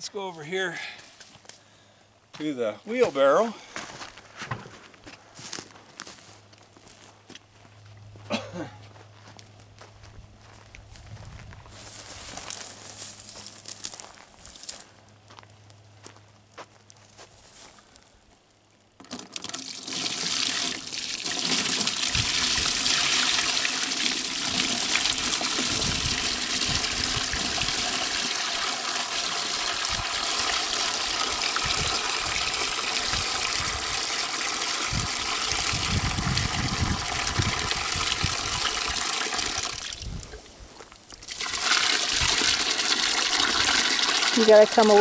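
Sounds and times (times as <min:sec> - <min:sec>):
liquid pouring: 0:19.0 - 0:40.0, 0:41.2 - 0:45.0.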